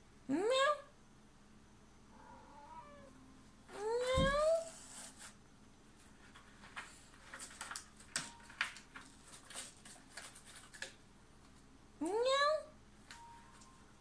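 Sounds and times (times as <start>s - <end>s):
cat scratching carpet: 4.0s - 5.4s.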